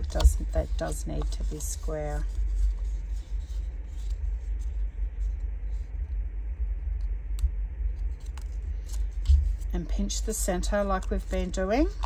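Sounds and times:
paper rustling and creasing: 0.0s - 6.0s
steady low rumble: 0.0s - 12.0s.

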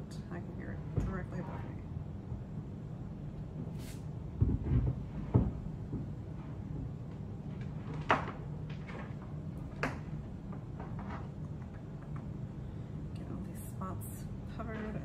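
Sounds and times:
steady low hum: 0.0s - 15.0s
dull thumps through ceiling: 4.3s - 11.1s.

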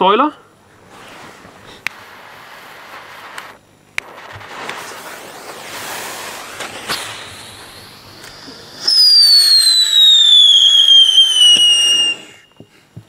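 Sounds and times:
firework hissing: 0.6s - 12.5s
firework shrill whistle falling: 2.3s - 12.6s.

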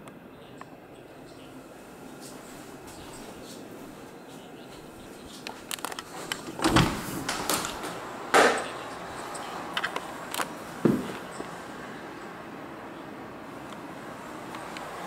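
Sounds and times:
door latch clicks: 6.4s - 8.6s.

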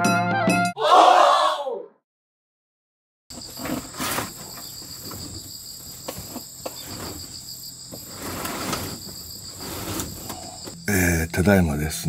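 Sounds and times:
knocks and rustles of movement: 3.3s - 10.8s
high insect trilling: 3.3s - 11.5s.

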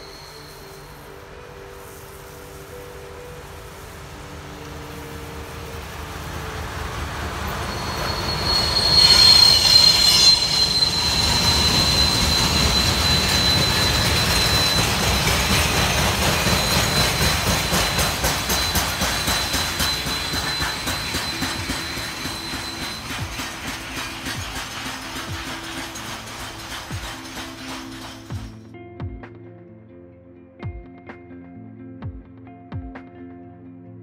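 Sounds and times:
wheel squeal: 0.0s - 1.8s, 7.4s - 28.6s
diesel locomotive passing: 0.0s - 28.7s
wheels clicking over rail joints: 4.6s - 28.6s.

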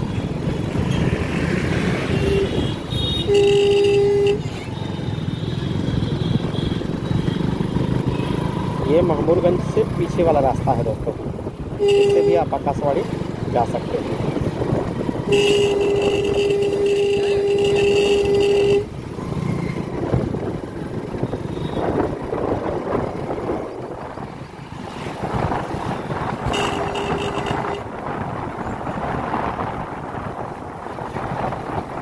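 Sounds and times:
motorcycle engine and road noise: 0.0s - 32.0s
vehicle horn: 2.1s - 4.6s, 11.8s - 12.5s, 15.3s - 18.9s, 26.4s - 27.9s.

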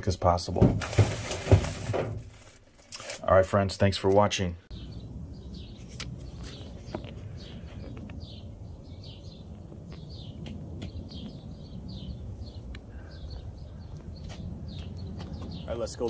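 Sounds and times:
low outdoor rumble: 3.8s - 16.0s
small birds chirping: 4.2s - 16.0s.

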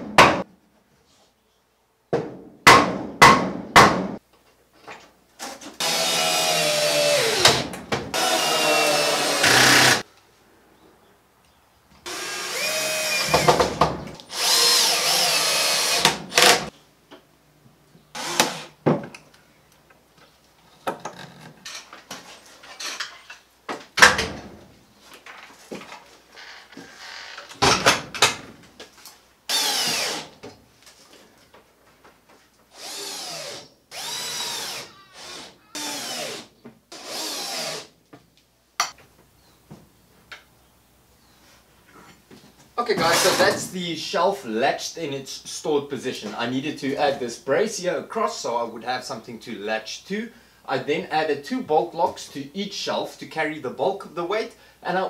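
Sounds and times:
drill driving screws into wood: 5.4s - 10.0s, 12.1s - 16.7s, 18.2s - 18.8s, 29.5s - 30.4s, 32.7s - 37.9s, 43.0s - 43.6s.

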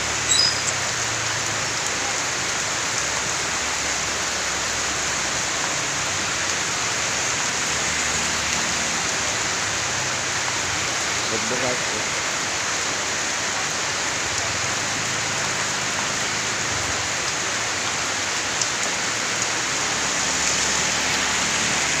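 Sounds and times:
heavy rain on a street: 0.0s - 22.0s.

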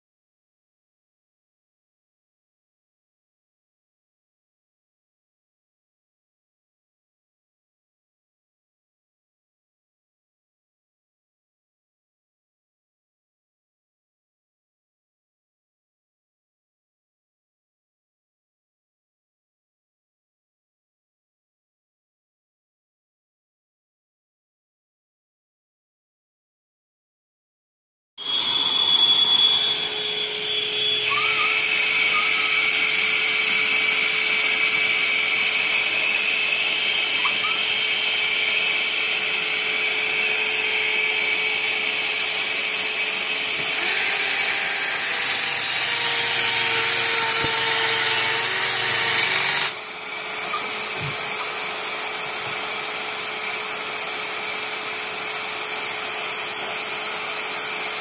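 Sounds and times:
circular saw cutting board: 28.2s - 58.0s
dust extractor running: 28.2s - 58.0s.

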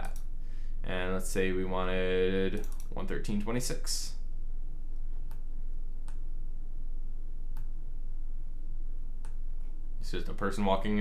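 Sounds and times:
computer mouse clicks: 0.0s - 0.3s, 2.5s - 2.9s
low steady hum: 0.0s - 11.0s.

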